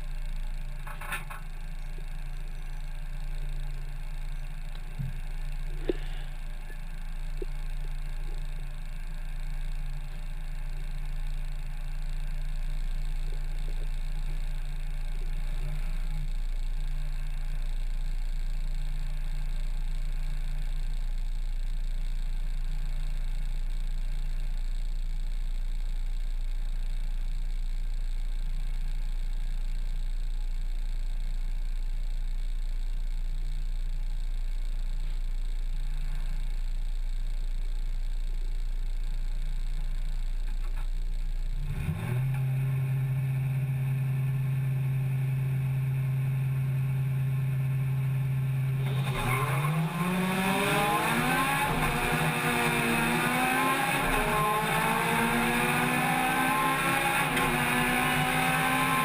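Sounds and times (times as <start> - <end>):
car engine idling: 0.0 - 59.0.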